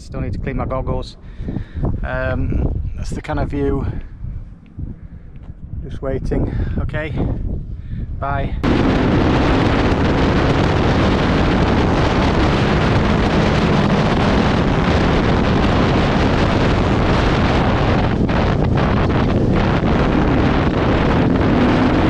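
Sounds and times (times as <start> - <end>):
wind rushing over microphone: 0.0 - 22.0
motorcycle engine running: 8.6 - 22.0.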